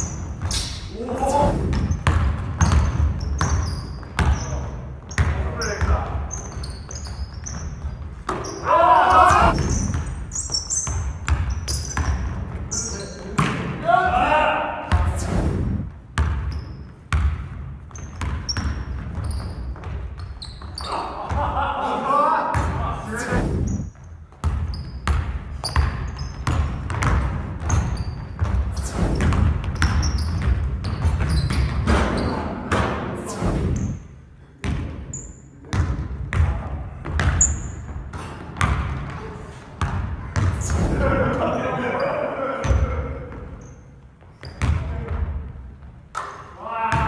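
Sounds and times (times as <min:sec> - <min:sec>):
sneaker squeaks: 0:00.0 - 0:01.0, 0:01.7 - 0:13.6, 0:16.2 - 0:21.4, 0:23.2 - 0:32.8, 0:34.9 - 0:35.8, 0:36.9 - 0:41.0, 0:41.9 - 0:45.2
basketball bouncing on wooden floor: 0:01.7 - 0:08.6, 0:09.4 - 0:12.7, 0:16.1 - 0:20.9, 0:24.2 - 0:33.0, 0:34.6 - 0:35.1, 0:35.7 - 0:40.8, 0:44.2 - 0:46.3.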